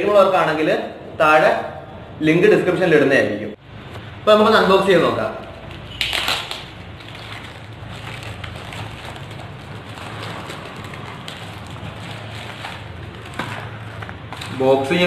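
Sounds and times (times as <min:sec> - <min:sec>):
plastic bag tearing: 0:05.4 - 0:15.0
plastic crinkling and rustling: 0:05.4 - 0:15.0.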